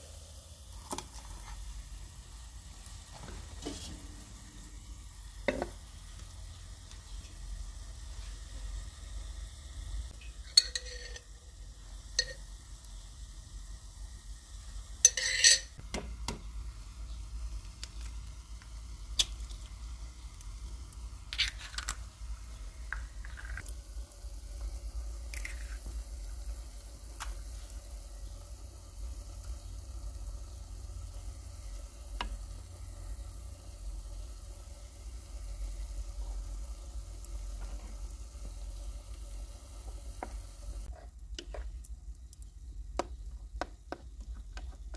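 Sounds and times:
sauce sizzling in a metal pan: 0.0s - 44.9s
eggs cracked on a pan: 0.7s - 1.4s, 10.1s - 11.4s, 12.1s - 12.6s, 15.0s - 16.5s, 17.6s - 23.8s, 24.6s - 26.2s, 27.1s - 27.7s.

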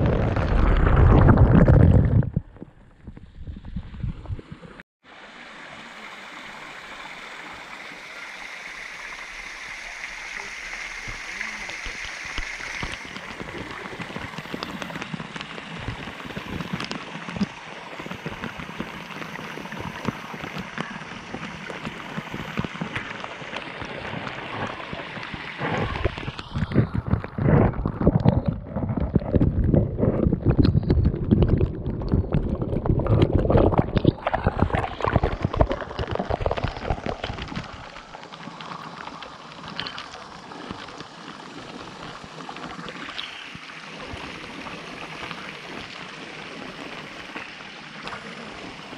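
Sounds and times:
water falling on microphone: 0.0s - 4.8s, 5.8s - 48.9s
waterfall splashing over rocks: 5.2s - 27.0s, 33.6s - 48.9s.

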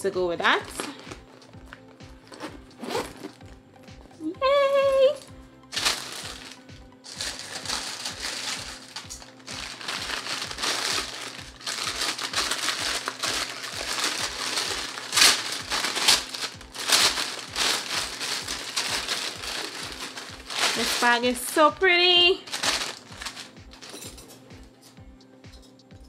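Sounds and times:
background music with low beat: 0.0s - 26.0s
plastic bag crinkling: 5.7s - 21.6s, 22.3s - 24.2s.

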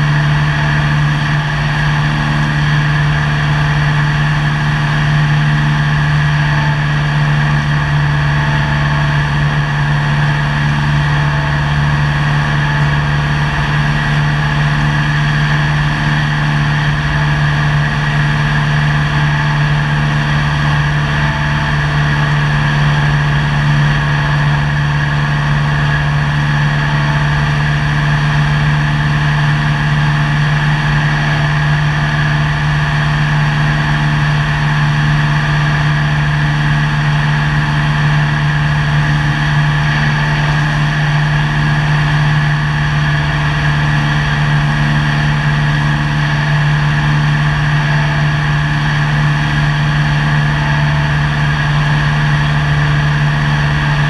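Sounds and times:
airplane engine drone: 0.0s - 54.0s.

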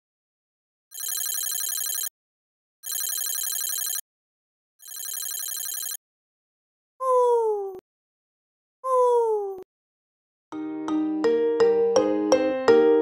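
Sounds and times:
toy phone trilling ring: 0.9s - 2.1s, 2.8s - 4.0s, 4.8s - 6.0s.

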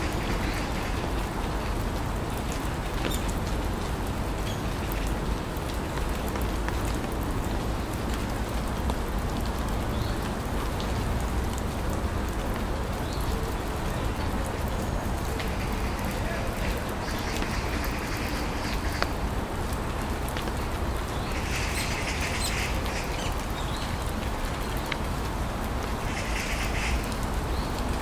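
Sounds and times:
steady rain falling: 0.0s - 28.0s.

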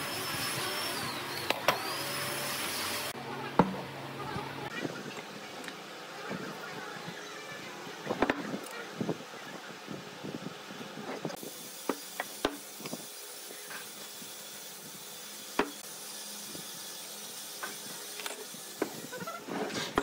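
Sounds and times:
wood lathe running: 0.0s - 3.2s.

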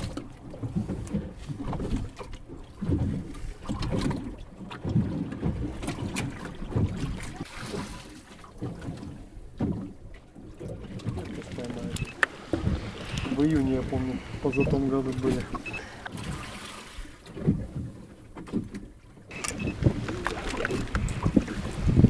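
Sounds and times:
water slapping boat hull: 0.0s - 22.0s
wind buffeting microphone: 11.0s - 15.8s, 19.3s - 22.0s.

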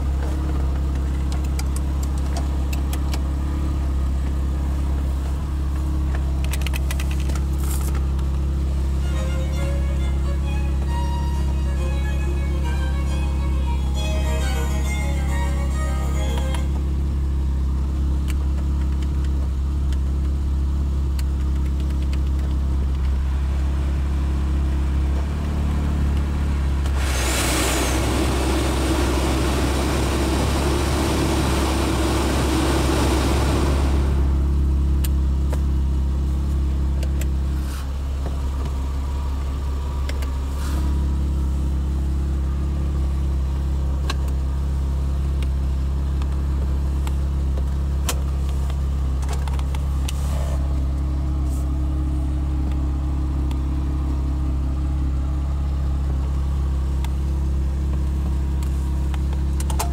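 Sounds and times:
car engine idling: 0.0s - 59.9s
button clicks: 16.2s - 16.8s
climate-control blower rushing: 26.8s - 34.4s.

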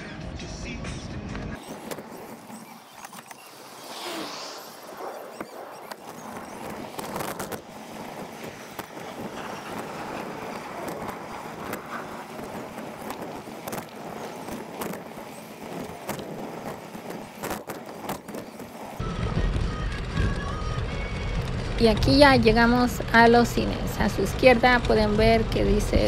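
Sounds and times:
steady rushing road noise: 0.0s - 26.0s
bicycle clicks and rattles: 5.3s - 19.0s.

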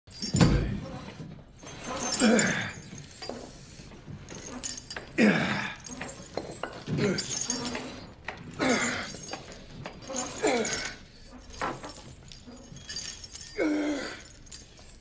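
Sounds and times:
man grunting with strain: 5.2s - 5.8s, 13.6s - 14.3s.

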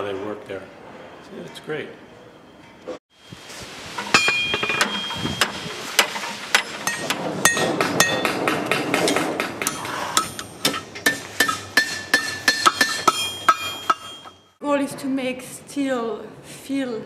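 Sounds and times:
hammers striking metal on anvils: 4.0s - 14.5s.

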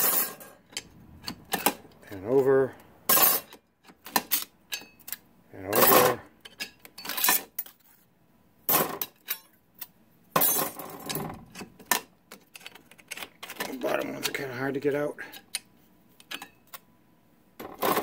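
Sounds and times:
metal discs clinking: 3.1s - 7.8s.

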